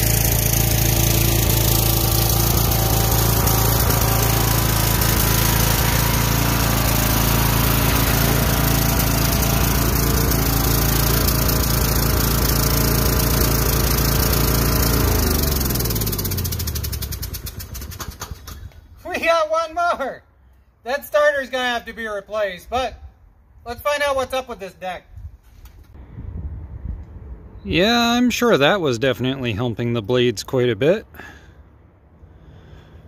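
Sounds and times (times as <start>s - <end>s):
riding mower engine running: 0.0s - 18.8s.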